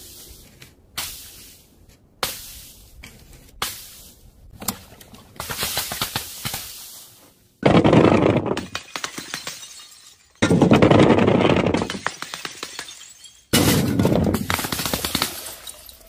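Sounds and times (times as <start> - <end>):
crackling hiss: 5.4 - 7.5.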